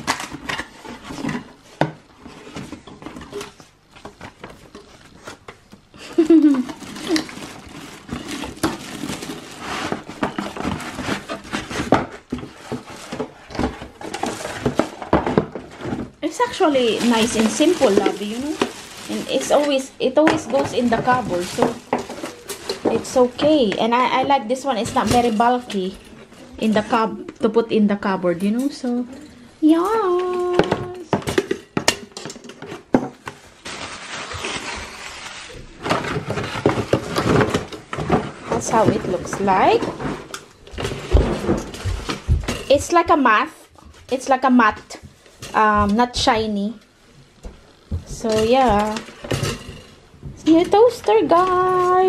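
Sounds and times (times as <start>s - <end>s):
plastic wrapping crinkling: 0.0s - 27.1s, 33.2s - 43.4s
pulp packaging scraping cardboard: 6.7s - 15.0s.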